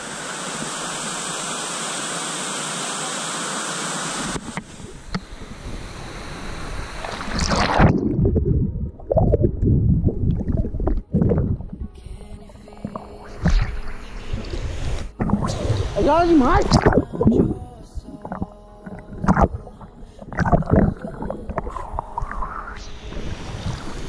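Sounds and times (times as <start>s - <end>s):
waterfall rushing: 0.0s - 7.9s
water splashing from wading: 6.7s - 9.4s, 12.7s - 22.5s.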